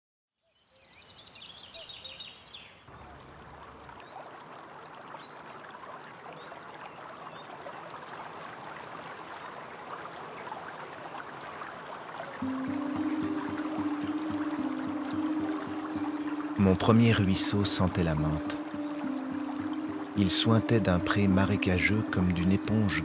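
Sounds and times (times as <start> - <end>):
small birds chirping: 0.5 - 2.9, 12.4 - 23.0
river flowing over stones: 2.8 - 23.0.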